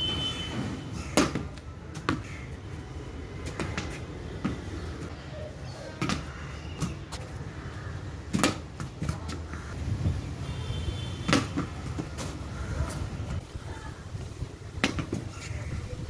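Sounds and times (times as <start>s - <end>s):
cricket bat striking ball: 1.1s - 2.3s, 8.3s - 8.7s, 11.2s - 11.8s.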